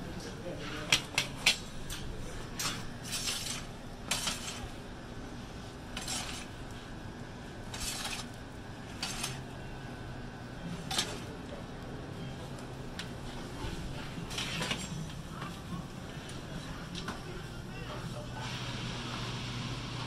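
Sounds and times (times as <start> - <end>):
steady low hum: 0.0 - 20.0
metal peel scraping oven floor: 2.4 - 4.8, 5.9 - 6.6, 7.7 - 9.5, 10.8 - 11.3, 13.9 - 14.9.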